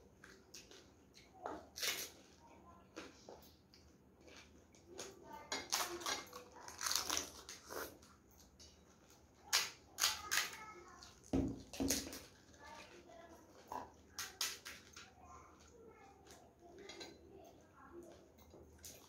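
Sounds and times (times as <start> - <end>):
fried shells cracking and crunching: 0.2 - 2.3, 4.2 - 12.7, 14.0 - 15.2
chewing: 0.2 - 19.0.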